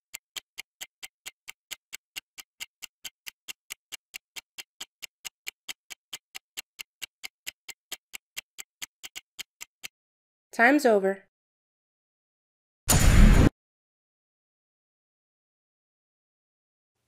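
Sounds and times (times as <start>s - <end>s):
timer ticking: 0.0s - 10.0s.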